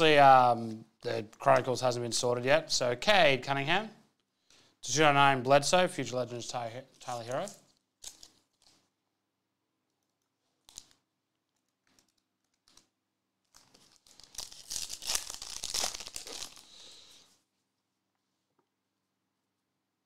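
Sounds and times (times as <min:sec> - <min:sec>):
foil wrapper crinkling: 0:07.0 - 0:08.9, 0:10.6 - 0:17.3
foil wrapper tearing: 0:07.4 - 0:08.8, 0:10.6 - 0:11.0, 0:13.5 - 0:17.1.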